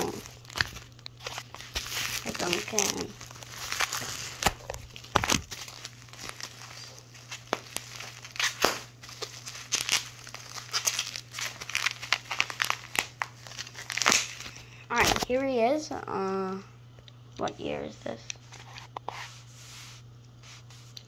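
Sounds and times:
packaging crinkling and tearing: 0:00.0 - 0:15.4.

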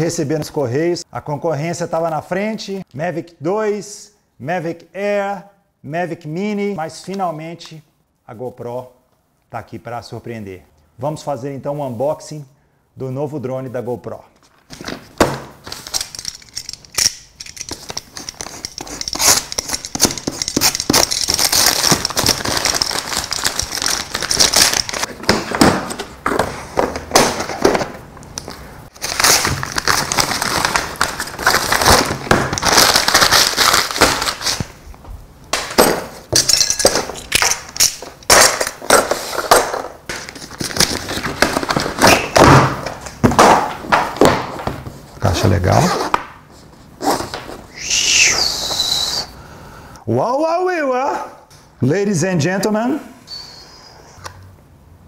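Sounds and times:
paper tearing and crumpling: 0:18.4 - 0:25.1, 0:28.9 - 0:34.7.

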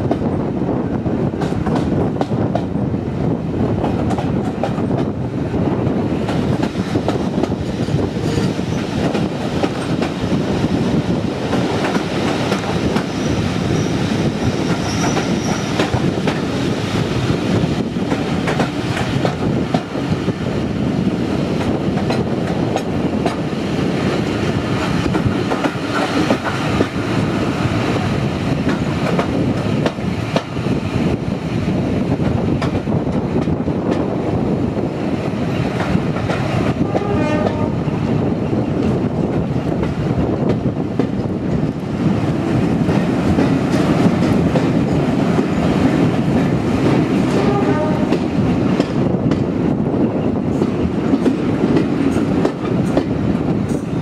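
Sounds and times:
train rumbling: 0:00.0 - 0:54.0
faint high wheel squeal: 0:14.8 - 0:15.7.

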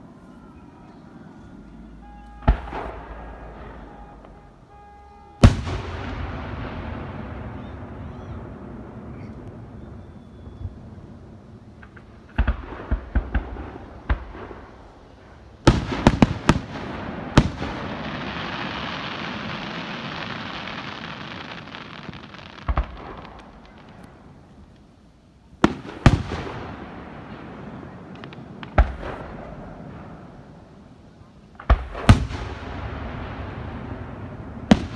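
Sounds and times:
fireworks bursting: 0:00.0 - 0:34.9
fireworks hiss: 0:01.9 - 0:34.9.

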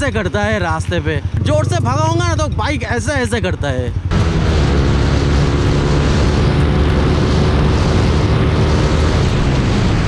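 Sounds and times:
motorcycle engine running: 0:00.0 - 0:10.0
wind rush on microphone: 0:04.0 - 0:10.0.

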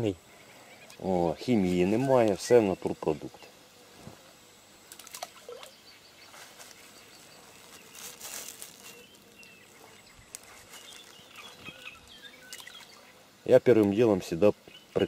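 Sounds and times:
faint bird chirps: 0:05.3 - 0:13.2
plastic bag and reeds rustling: 0:06.3 - 0:09.5, 0:10.2 - 0:11.8.

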